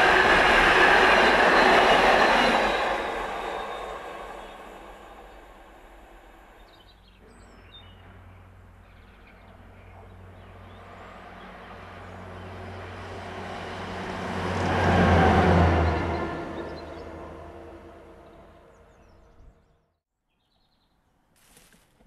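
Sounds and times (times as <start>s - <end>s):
train rumble: 0.0s - 19.5s
diesel engine hum passing: 7.5s - 18.9s.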